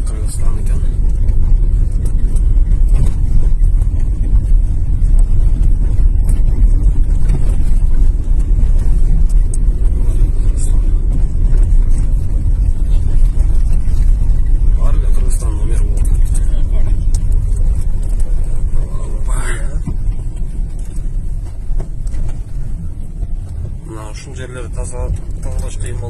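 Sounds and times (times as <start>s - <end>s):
car engine and tyres rumbling: 0.0s - 26.0s.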